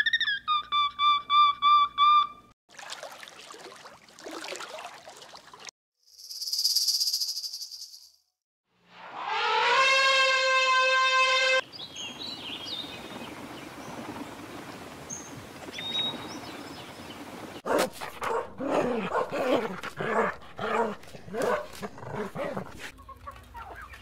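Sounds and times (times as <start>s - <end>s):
elephant trumpeting: 9.0s - 11.6s
dog barking and yipping: 17.6s - 22.9s.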